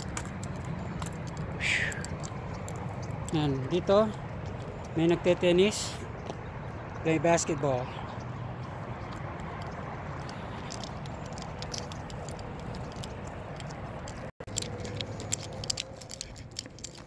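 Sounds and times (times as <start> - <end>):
footsteps on gritty pavement: 0.0 - 17.0
outdoor background noise: 0.0 - 17.0
phone handling rustles and clicks: 9.5 - 17.0.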